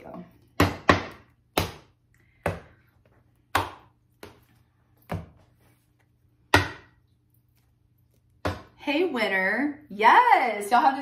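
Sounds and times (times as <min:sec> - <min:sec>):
cards knocked on countertop: 0:06.4 - 0:07.0.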